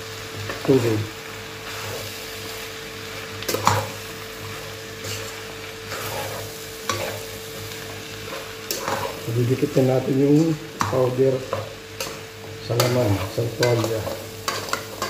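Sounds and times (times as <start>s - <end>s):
meat sizzling in a pot: 0.0s - 15.0s
spoon scraping a pot: 3.5s - 7.3s, 8.3s - 9.2s.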